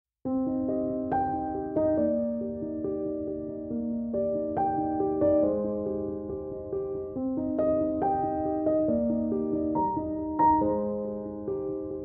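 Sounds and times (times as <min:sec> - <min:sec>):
soft keyboard chords: 0:00.3 - 0:12.0.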